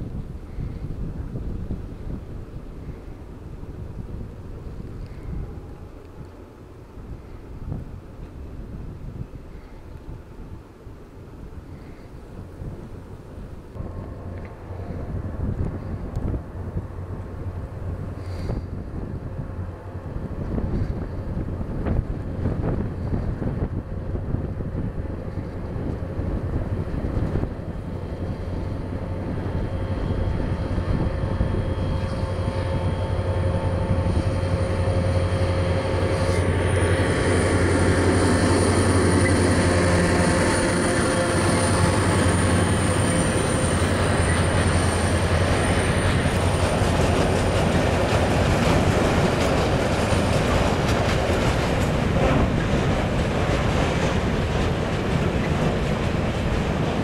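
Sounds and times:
diesel locomotive engine drone: 0.0 - 57.0
freight wagons rumbling on rails: 0.0 - 57.0
high wheel squeal: 29.5 - 46.8.

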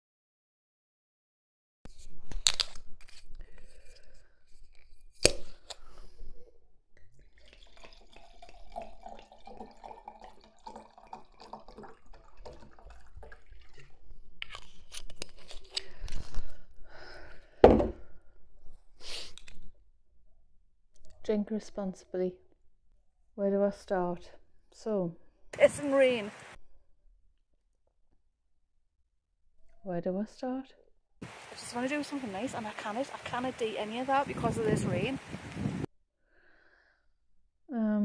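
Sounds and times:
wine glugging into a glass: 7.2 - 14.0
glass bottle knocking on table: 17.6 - 18.0.

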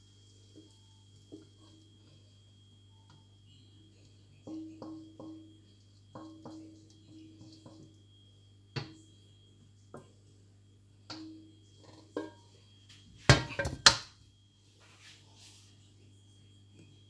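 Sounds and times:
wok clattering on cooktop: 12.2 - 12.4, 13.3 - 14.1.

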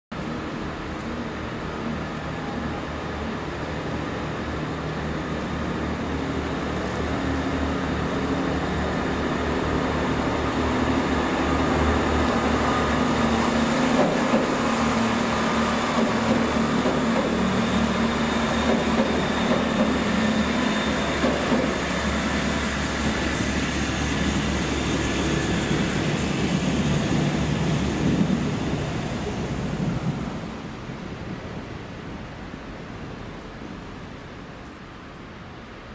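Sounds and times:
diesel train engines: 0.2 - 35.9.

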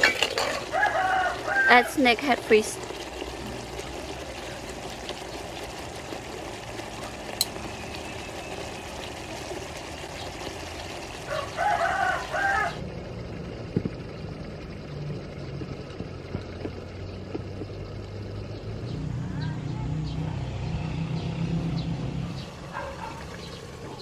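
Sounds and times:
pot bubbling with steady hiss: 0.0 - 19.7, 20.4 - 24.0
rooster crowing: 0.4 - 2.0, 11.2 - 12.8.

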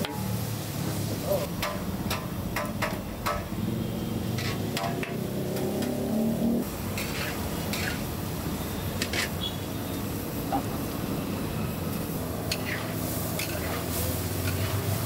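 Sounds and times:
steady background noise: 0.0 - 15.0
metal spatula scraping a wok: 4.2 - 5.2, 6.9 - 8.2, 8.9 - 9.5, 12.5 - 15.0.

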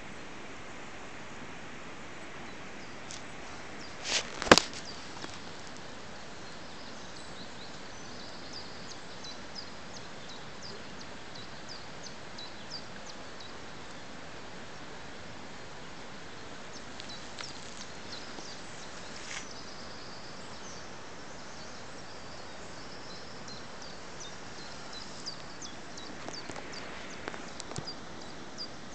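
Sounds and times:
steady outdoor hiss: 0.0 - 28.9
bird chirping: 2.8 - 14.1, 16.7 - 28.9
brief rustle: 3.9 - 5.8.

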